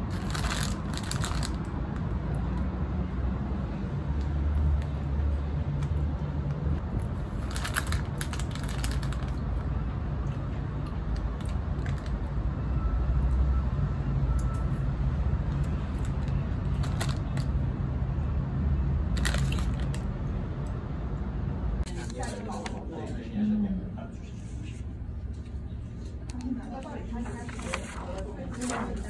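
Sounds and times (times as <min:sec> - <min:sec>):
plastic wrapper crinkling: 0:00.0 - 0:01.7, 0:07.2 - 0:09.5, 0:19.2 - 0:20.1.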